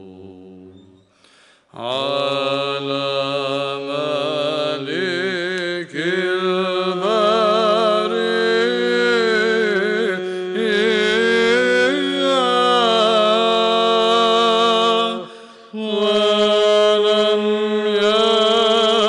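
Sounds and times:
held vocal drone: 0:00.0 - 0:01.1, 0:01.7 - 0:19.0
man chanting a hymn: 0:01.8 - 0:19.0.

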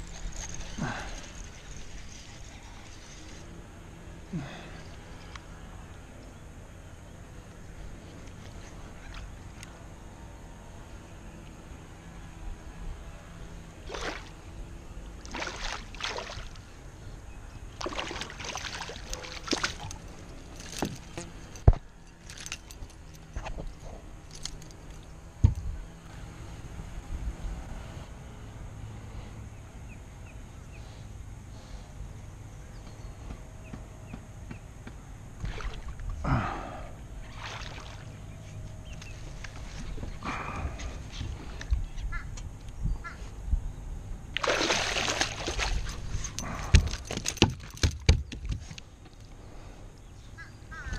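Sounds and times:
fish splashing at water surface: 0:13.9 - 0:14.3, 0:15.3 - 0:16.6, 0:17.8 - 0:20.0, 0:37.3 - 0:38.1, 0:44.4 - 0:46.0.

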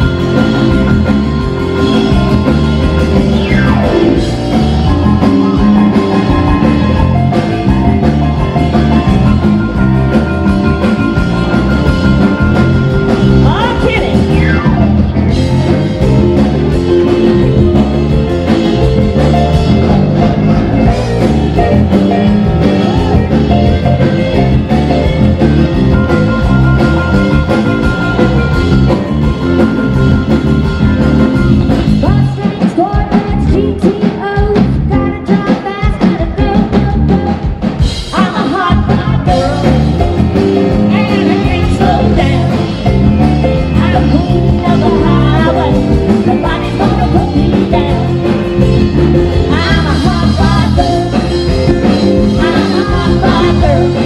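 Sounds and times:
rock and roll guitar: 0:00.0 - 0:54.0
person singing: 0:32.0 - 0:54.0.

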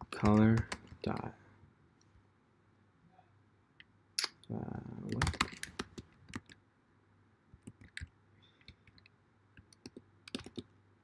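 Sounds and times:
keyboard typing: 0:00.0 - 0:01.3, 0:05.0 - 0:06.6, 0:07.6 - 0:10.7.

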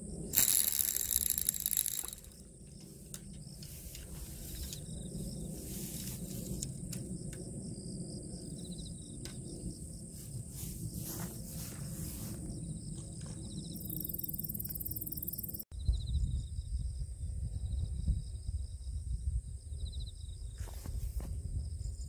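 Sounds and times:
insects trilling: 0:00.0 - 0:15.6.

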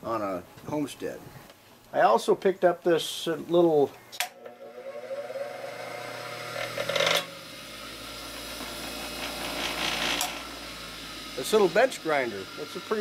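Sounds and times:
bench grinder motor whining: 0:04.3 - 0:13.0
whirring rattle: 0:04.7 - 0:13.0.

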